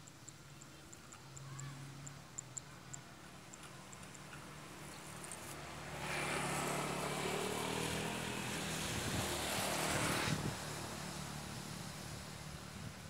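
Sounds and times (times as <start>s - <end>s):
engine passing by: 4.5s - 13.0s.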